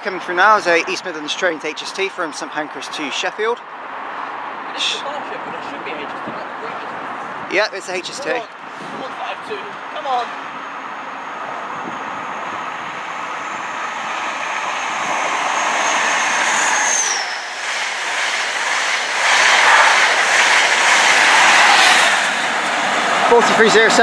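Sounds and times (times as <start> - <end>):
train coaches rushing and clattering: 4.8 - 24.0.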